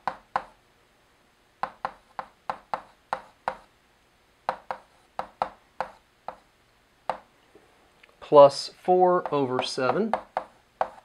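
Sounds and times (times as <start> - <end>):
chalk tapping on blackboard: 0.0 - 0.6, 1.6 - 3.7, 4.5 - 6.5, 7.1 - 7.3, 9.2 - 11.0.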